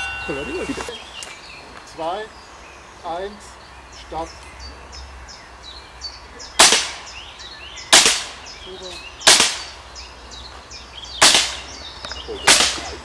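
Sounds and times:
rifle shots with echo: 0:06.6 - 0:07.0, 0:07.9 - 0:08.4, 0:09.3 - 0:09.7, 0:12.4 - 0:13.0.

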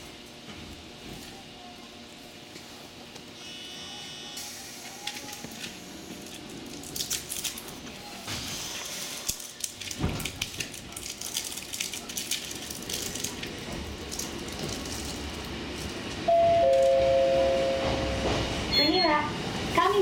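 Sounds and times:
electric train rumbling: 0:12.6 - 0:20.0.

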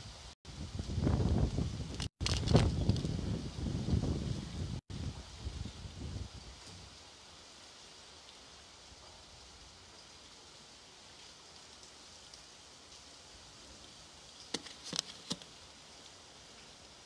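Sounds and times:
rain on wet concrete: 0:06.4 - 0:17.0.

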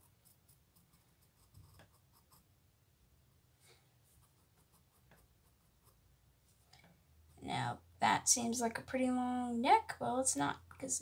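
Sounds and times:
pencil scratching on paper: 0:00.0 - 0:02.5, 0:04.0 - 0:06.2.

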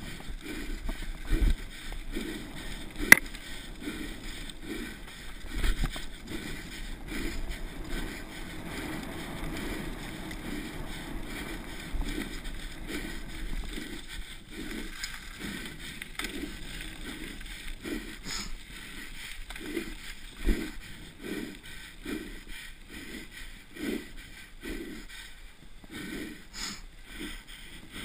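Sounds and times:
bike tyre noise: 0:00.0 - 0:28.0
hard fast breathing: 0:00.0 - 0:28.0.

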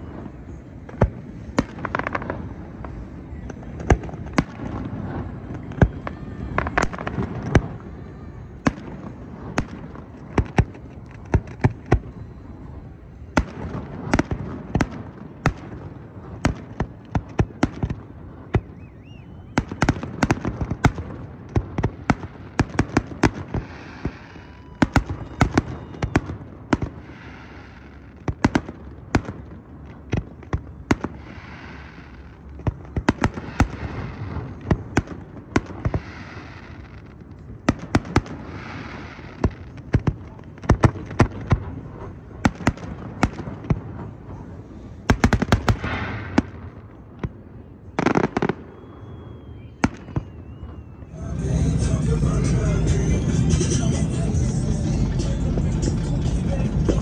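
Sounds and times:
fireworks bangs: 0:00.0 - 0:57.0
fireworks hissing: 0:23.2 - 0:25.7, 0:26.9 - 0:28.2, 0:31.1 - 0:32.5, 0:35.8 - 0:37.1, 0:38.3 - 0:39.6.

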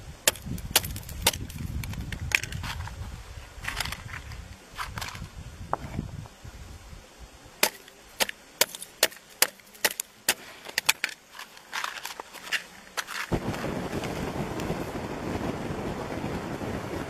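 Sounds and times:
hand tool tapping on ice: 0:00.3 - 0:02.6, 0:07.6 - 0:13.3.

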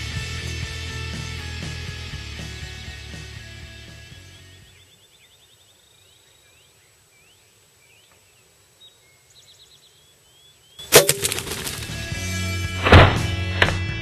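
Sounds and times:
songbird calls: 0:04.2 - 0:12.0.

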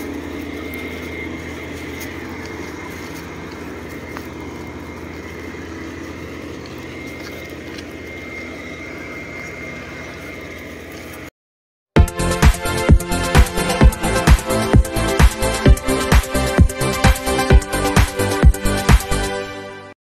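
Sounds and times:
generator engine humming: 0:00.0 - 0:11.3, 0:12.0 - 0:19.9
thin high tone: 0:00.0 - 0:11.3.

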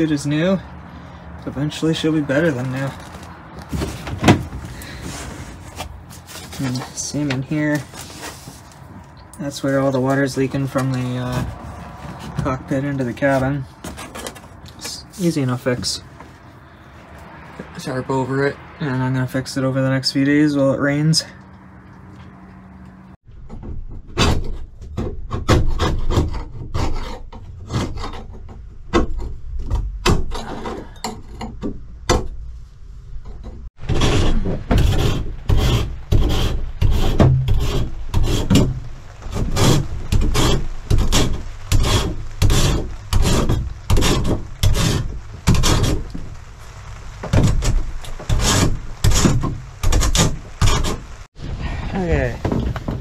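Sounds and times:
hand tool rasping: 0:33.9 - 0:46.2, 0:47.5 - 0:51.2.

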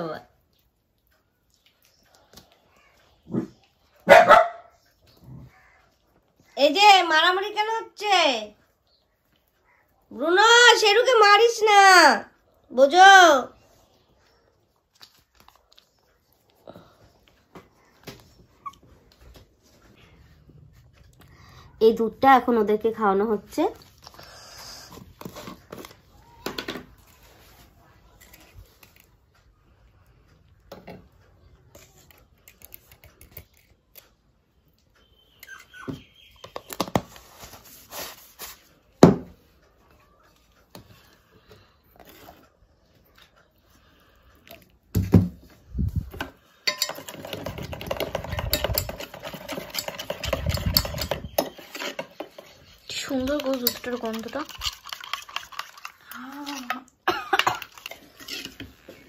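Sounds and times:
metal spoon scraping steel bowl: 0:46.7 - 0:59.0.

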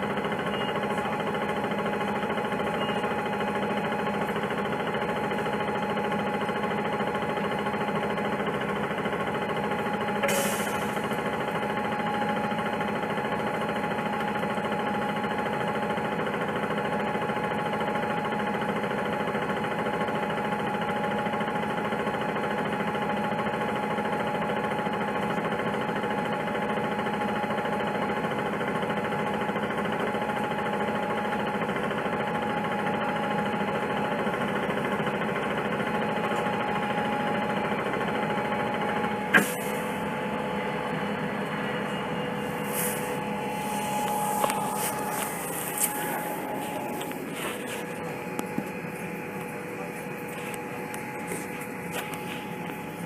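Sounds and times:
bus engine humming: 0:00.0 - 0:53.0.

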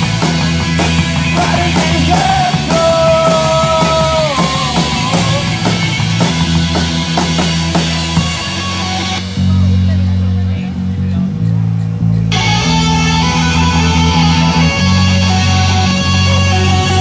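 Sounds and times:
drum beat: 0:00.0 - 0:10.0
distorted guitar chords: 0:00.0 - 0:17.0
live punk rock band: 0:00.0 - 0:17.0.

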